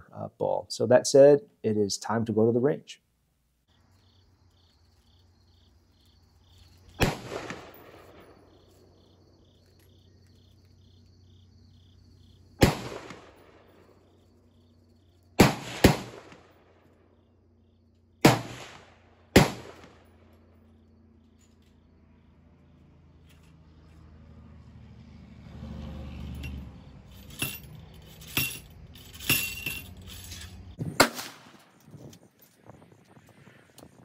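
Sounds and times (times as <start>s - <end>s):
insects chirping: 3.4s - 34.0s
gunshots: 7.0s - 8.3s, 12.6s - 13.8s, 15.4s - 16.7s, 18.2s - 20.0s, 30.8s - 31.6s.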